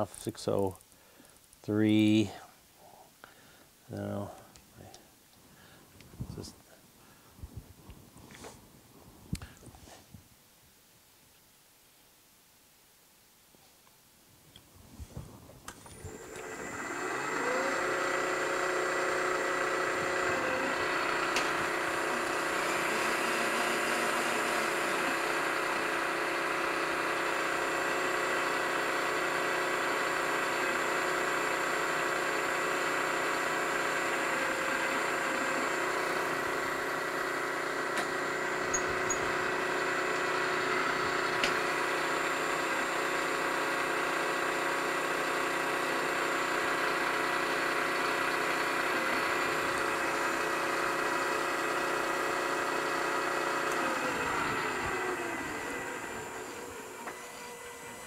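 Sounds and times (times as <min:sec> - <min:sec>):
milling machine spindle whine: 0:15.8 - 0:58.0
end mill cutting aluminium: 0:15.9 - 0:44.0, 0:47.5 - 0:58.0.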